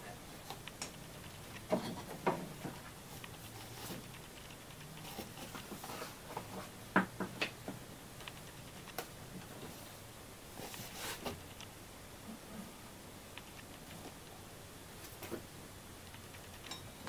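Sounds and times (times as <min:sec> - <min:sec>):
light clicks and taps: 0:00.5 - 0:09.6, 0:13.3 - 0:14.3.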